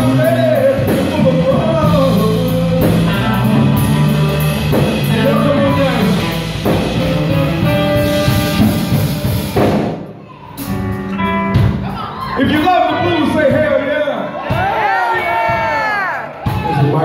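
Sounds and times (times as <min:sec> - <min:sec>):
electric guitar: 0:00.0 - 0:12.4
drum kit: 0:00.0 - 0:17.0
live blues band playing: 0:00.0 - 0:17.0
saxophone: 0:02.6 - 0:09.6
trumpet: 0:05.3 - 0:09.6.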